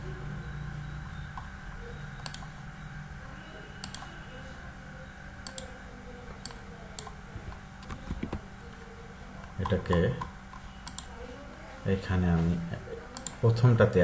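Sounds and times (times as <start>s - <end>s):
low background hum: 0.0s - 14.0s
computer mouse clicking: 2.2s - 2.6s, 3.8s - 4.2s, 5.4s - 5.7s, 6.4s - 7.2s, 9.6s - 11.1s, 13.2s - 13.4s.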